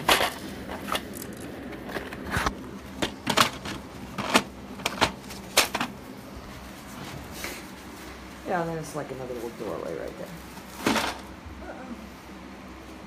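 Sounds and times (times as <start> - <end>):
sharp clicks and knocks: 0.0 - 6.0.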